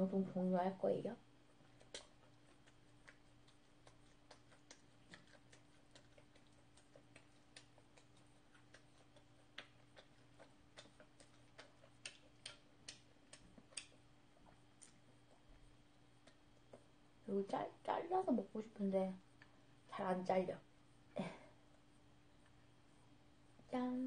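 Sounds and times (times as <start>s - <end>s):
low steady hum: 0.0s - 24.0s
wet chewing clicks: 1.3s - 17.2s.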